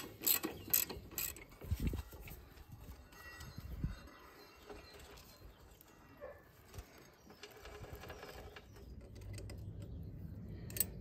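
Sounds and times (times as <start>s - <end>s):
chain clicking and rattling: 0.0s - 1.9s.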